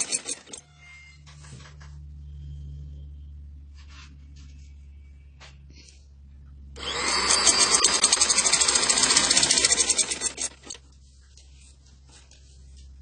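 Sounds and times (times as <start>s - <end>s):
sewing machine stitching: 0.0s - 0.6s, 6.8s - 10.8s.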